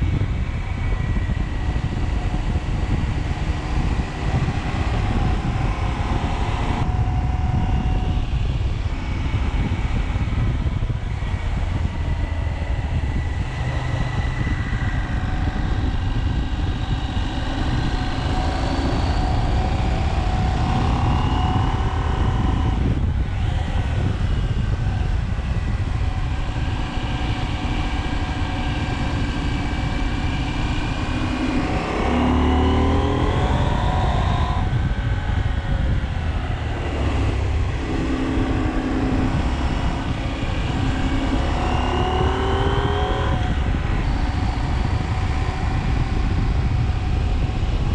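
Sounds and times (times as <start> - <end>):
motorcycle engine accelerating: 0.0 - 47.9
wind rumble on microphone: 0.0 - 47.9.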